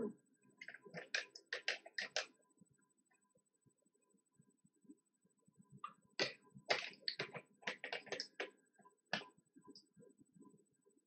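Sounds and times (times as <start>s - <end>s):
sharp clicks and taps: 0.6s - 2.3s, 5.8s - 8.5s.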